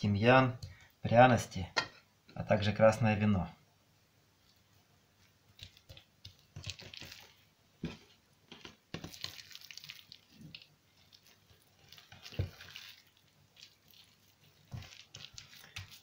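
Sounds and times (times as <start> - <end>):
wet squishes of raw meat: 5.2 - 7.4, 8.6 - 16.0.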